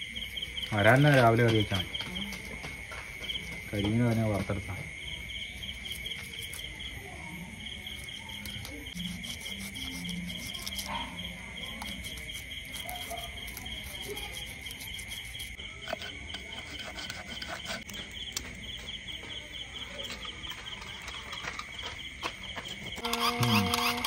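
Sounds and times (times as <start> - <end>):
cricket high trill: 0.0 - 24.0
pulsing cricket chirp: 0.0 - 24.0.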